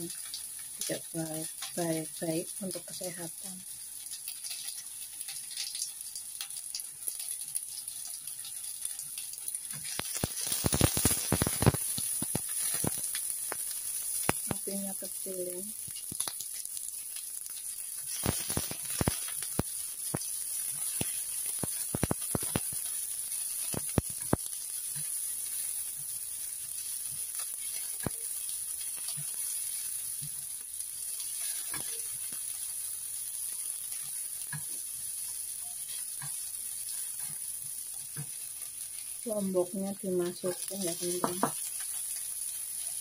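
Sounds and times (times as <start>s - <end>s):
onions sizzling in a frying pan: 0.0s - 43.0s
spatula scraping a pan: 8.0s - 13.3s, 31.1s - 32.5s.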